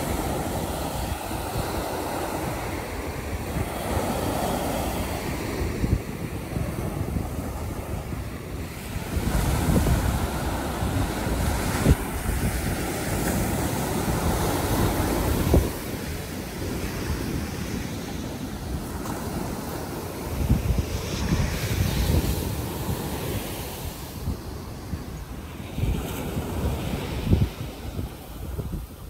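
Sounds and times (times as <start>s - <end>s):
ocean surf breaking: 0.0s - 29.0s
wind rumbling on microphone: 0.0s - 29.0s.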